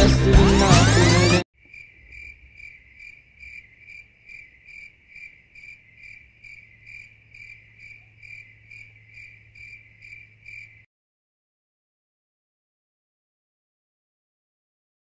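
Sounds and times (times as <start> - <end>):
cricket chirping: 1.6 - 10.9.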